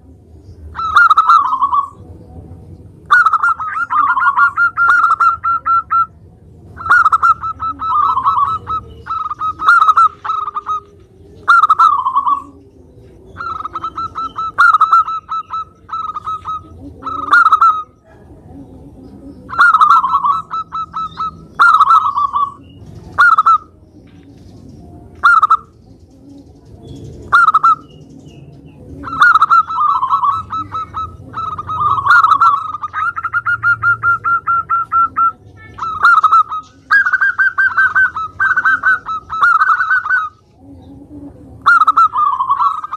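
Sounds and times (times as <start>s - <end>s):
dove cooing: 0.0s - 42.9s.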